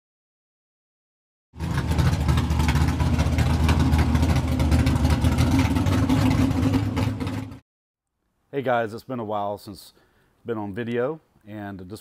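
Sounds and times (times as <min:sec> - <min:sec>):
car engine running: 0:01.6 - 0:07.6
rough pulsing exhaust: 0:01.6 - 0:07.6.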